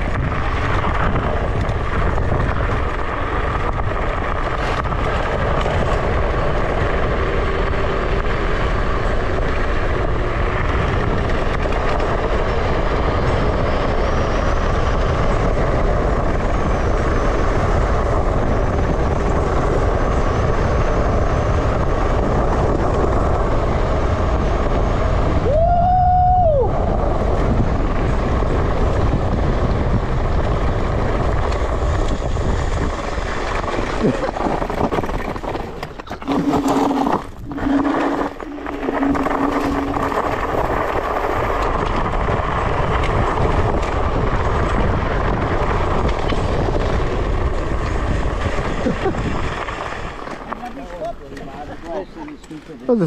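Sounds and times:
wind buffeting microphone: 0.0 - 53.0
tyre rumble: 17.4 - 51.0.

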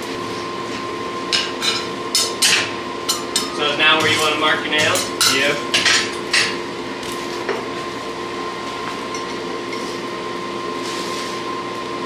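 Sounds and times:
forge blower whining: 0.0 - 12.0
metal tongs clanking: 1.6 - 6.6.

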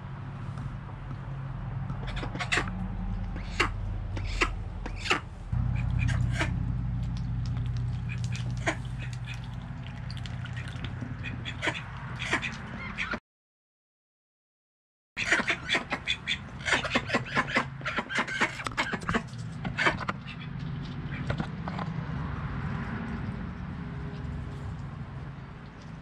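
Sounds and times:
ducks quacking: 2.0 - 6.7, 7.9 - 9.6, 10.4 - 13.2, 15.2 - 21.5
steady low hum: 2.7 - 11.6
duck bill clicks: 7.0 - 9.5.

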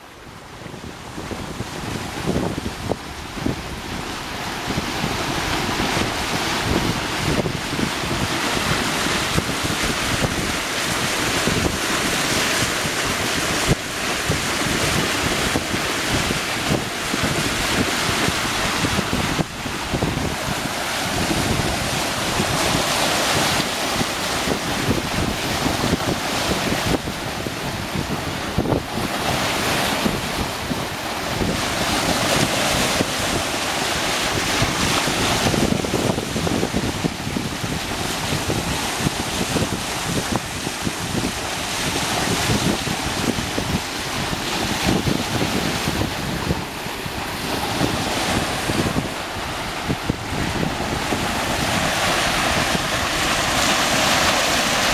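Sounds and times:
water rushing and splashing: 0.0 - 54.9
wind buffeting microphone: 0.0 - 54.9.

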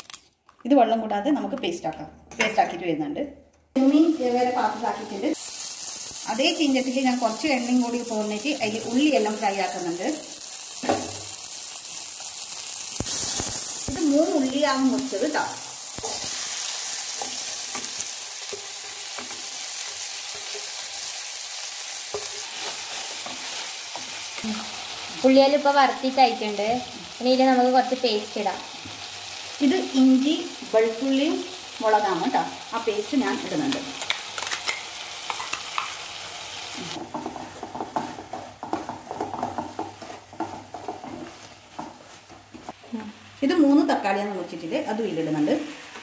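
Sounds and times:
onions sizzling in hot oil: 3.8 - 46.0
spoon scraping and knocking pan: 16.0 - 21.2, 22.0 - 24.4, 34.0 - 36.0, 37.0 - 42.8.

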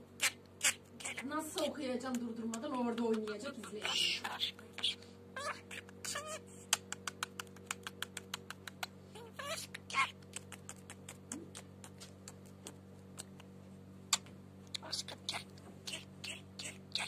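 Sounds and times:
budgerigar chirps: 3.7 - 6.4
budgerigar beak clicks: 5.7 - 9.0, 9.7 - 13.5.

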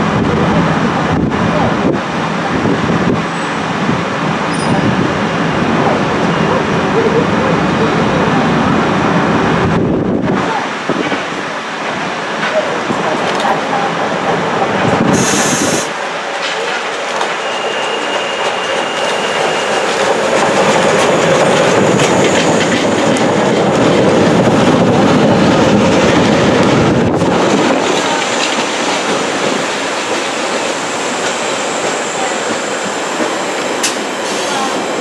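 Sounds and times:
train wheels clattering: 11.0 - 34.8
short hiss: 15.2 - 15.9.

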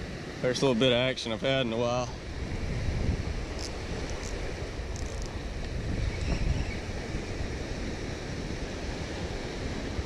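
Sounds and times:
small waves washing on beach: 0.0 - 10.0
wind rumbling on microphone: 0.0 - 10.0.

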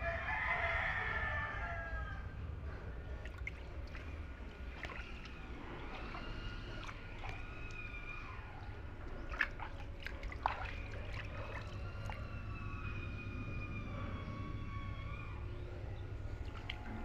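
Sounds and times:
bare feet splashing in water: 3.2 - 12.4, 16.4 - 17.0.

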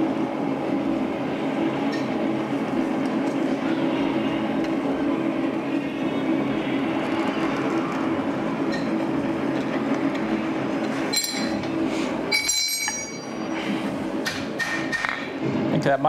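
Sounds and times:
forge roaring: 0.0 - 12.2.

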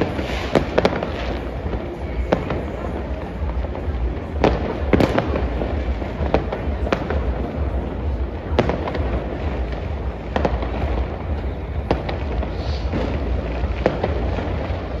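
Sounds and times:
firecrackers banging: 0.0 - 15.0
rumble of distant explosions: 0.0 - 15.0.

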